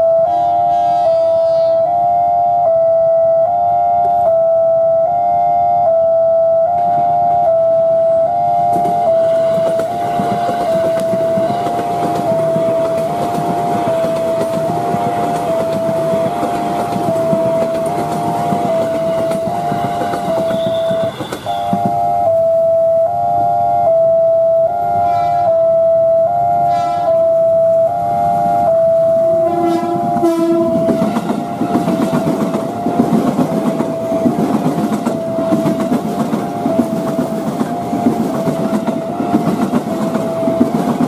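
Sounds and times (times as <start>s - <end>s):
level crossing alarm two-tone chime: 0.0s - 34.2s
electric train rumbling past: 0.0s - 41.0s.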